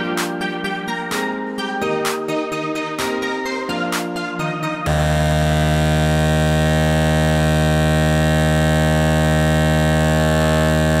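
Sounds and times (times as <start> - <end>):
low buzzing hum: 4.9 - 11.0.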